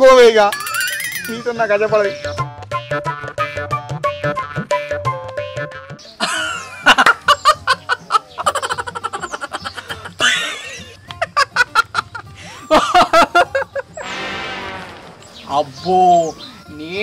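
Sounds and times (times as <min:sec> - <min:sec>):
background music: 0:00.0 - 0:17.0
person laughing: 0:06.2 - 0:14.0.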